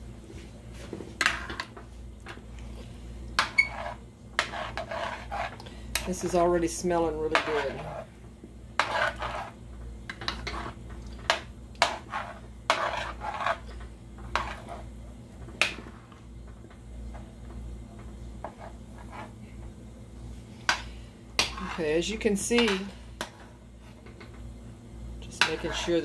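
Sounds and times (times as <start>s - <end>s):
steady low hum: 0.0s - 26.0s.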